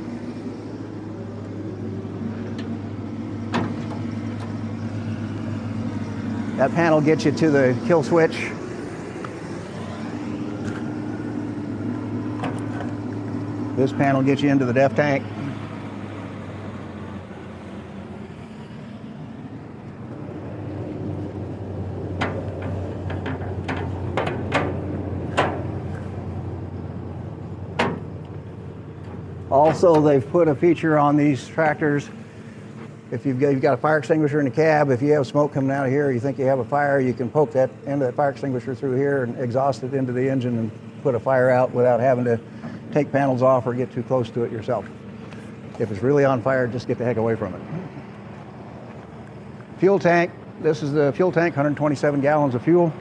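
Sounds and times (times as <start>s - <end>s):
engine idling hum: 0.0s - 53.0s
metallic clanks and latch clicks: 3.5s - 4.6s, 12.4s - 13.0s, 22.2s - 25.8s, 27.7s - 28.4s.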